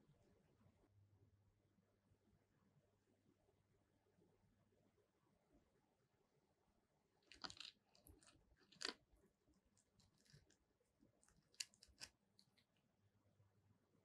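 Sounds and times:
crisp fried coating crackling: 7.3 - 9.0.

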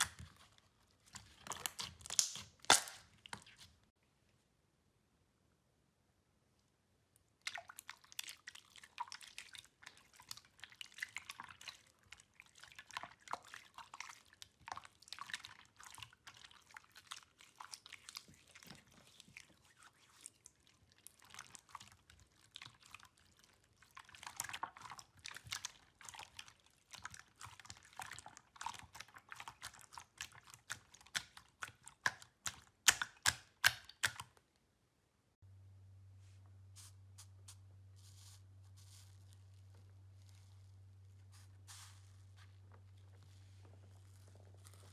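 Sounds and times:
sticky slime clicks and pops: 32.1 - 34.3.

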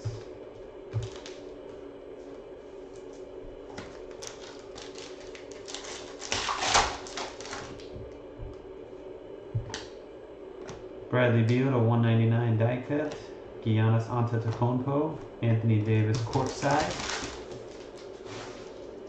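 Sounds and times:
faint steady hum: 0.0 - 19.0
card packs crinkling and rustling: 1.0 - 1.5, 3.0 - 8.1, 15.8 - 19.0.

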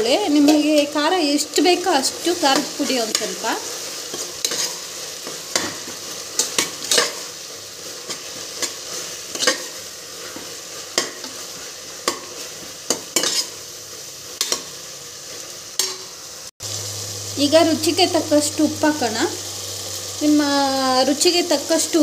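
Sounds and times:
food sizzling in oil: 0.0 - 22.0
spatula scraping a pot: 3.1 - 13.6.

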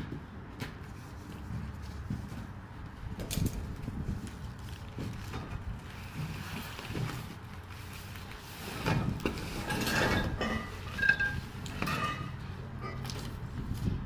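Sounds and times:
padded tubes sliding onto tile floor: 5.9 - 12.3.

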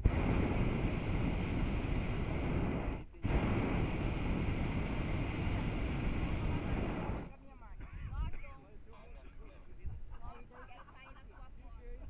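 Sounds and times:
propane burner roaring: 0.0 - 7.4.

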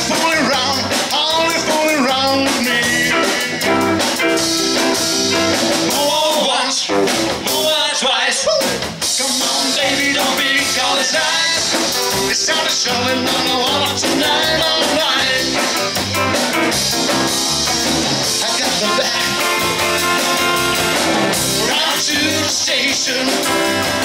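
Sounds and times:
man singing: 0.0 - 4.1, 5.8 - 16.0, 18.2 - 19.6, 21.5 - 24.0
rock band playing: 0.0 - 24.0.

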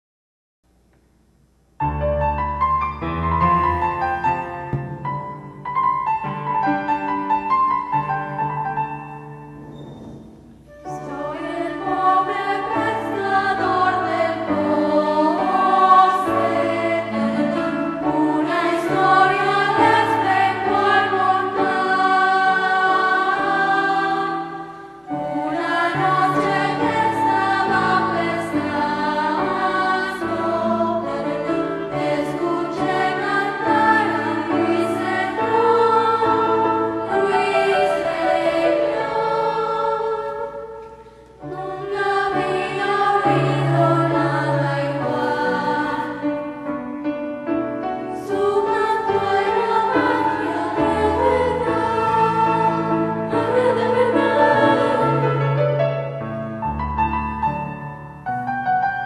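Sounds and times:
instrumental accompaniment: 1.8 - 59.0
choir singing: 9.6 - 46.8, 48.0 - 56.2.

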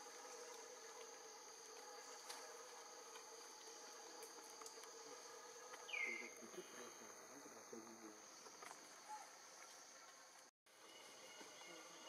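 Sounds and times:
insects droning: 0.0 - 12.0
small ticks: 4.2 - 5.0.

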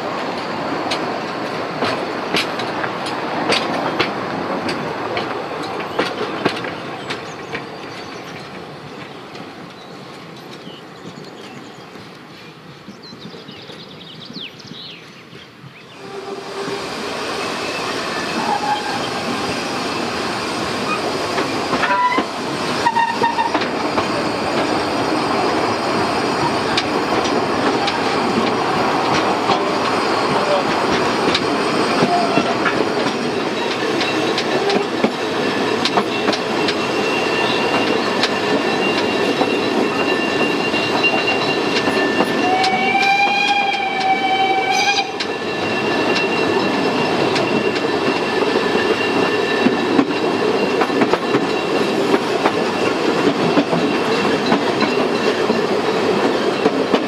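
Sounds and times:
train wheels rumbling and rattling: 0.0 - 57.0
steam whistle: 16.0 - 19.9, 21.8 - 23.6, 41.0 - 45.3.

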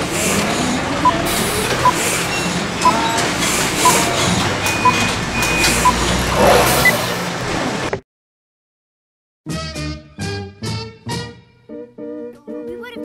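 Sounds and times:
short repeating beep: 3.8 - 6.0.

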